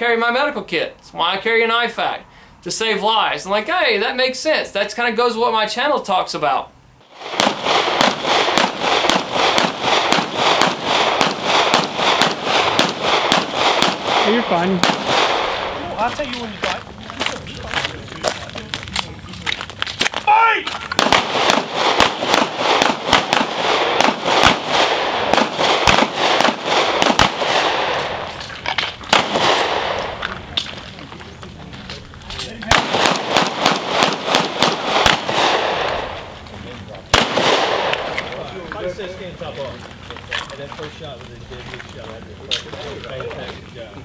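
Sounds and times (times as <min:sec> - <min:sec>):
pistol shots with echo: 0:07.1 - 0:15.8, 0:20.9 - 0:28.3, 0:29.1 - 0:30.2, 0:32.6 - 0:36.3, 0:37.1 - 0:38.3.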